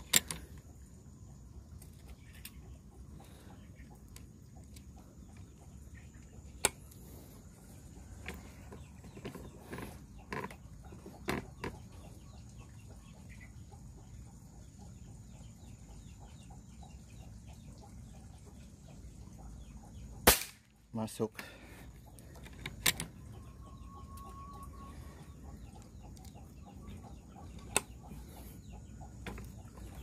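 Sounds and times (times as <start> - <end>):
chickens clucking: 0.0 - 20.2, 21.4 - 30.0
soft knocks of rifle handling: 29.2 - 29.6.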